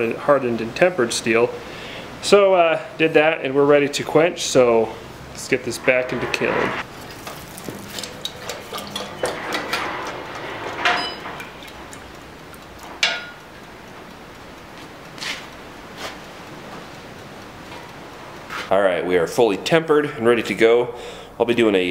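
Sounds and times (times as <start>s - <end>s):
steel knocking against metal tank: 13.0s - 13.4s.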